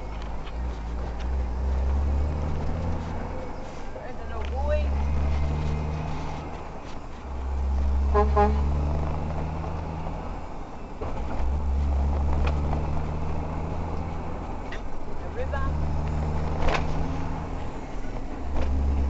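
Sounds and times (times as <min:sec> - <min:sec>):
car engine and road drone: 0:00.0 - 0:19.0
car horn toots: 0:08.0 - 0:08.7.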